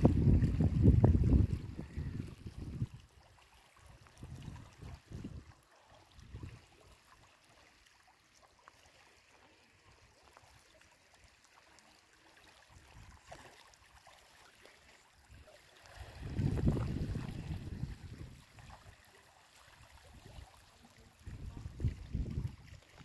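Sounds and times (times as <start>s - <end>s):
wind buffeting microphone: 0.0s - 3.0s, 16.0s - 18.5s, 21.2s - 23.0s
small waves lapping on stones: 0.0s - 23.0s.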